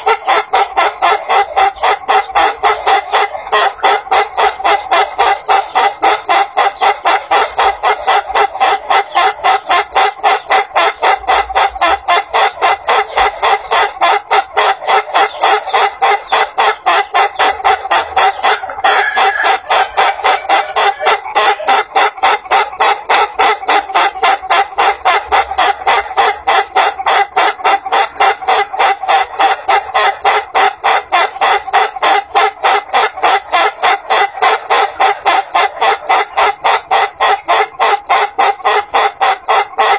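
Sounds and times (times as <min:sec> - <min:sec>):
rooster crowing like laughter: 0:15.8 - 0:30.2.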